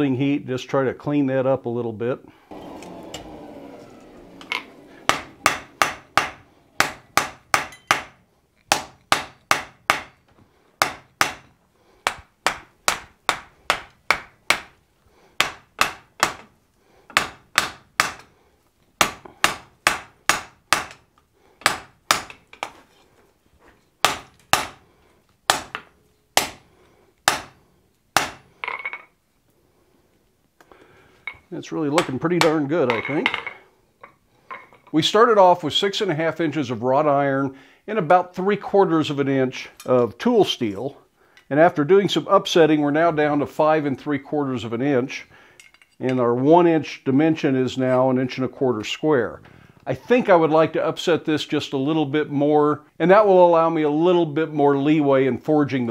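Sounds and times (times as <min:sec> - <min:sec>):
hammer striking hot iron on anvil: 0:05.1 - 0:10.2, 0:24.0 - 0:24.8, 0:26.4 - 0:26.6, 0:28.2 - 0:28.8.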